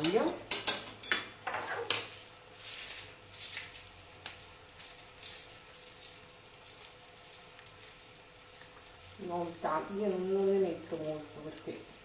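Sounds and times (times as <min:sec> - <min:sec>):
garlic skin scraping and rustling: 0:01.8 - 0:09.6.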